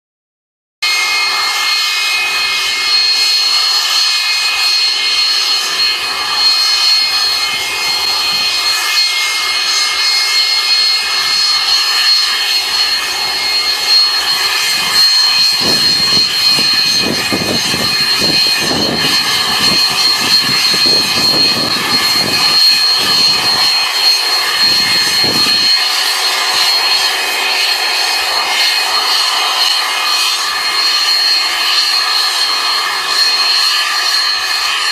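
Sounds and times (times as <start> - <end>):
jet engine whine: 0.8 - 34.9
low rumbling: 10.5 - 25.8.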